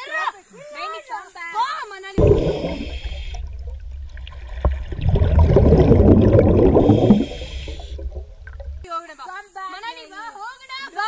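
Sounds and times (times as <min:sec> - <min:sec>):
low rumble: 0:02.2 - 0:08.9
underwater bubbling and gurgling: 0:02.2 - 0:08.9.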